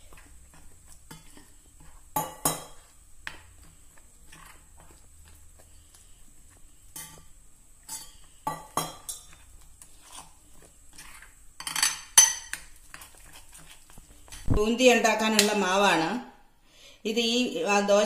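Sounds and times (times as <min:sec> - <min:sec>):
spoon scraping in glass bowl: 0:03.6 - 0:05.4, 0:07.0 - 0:14.5.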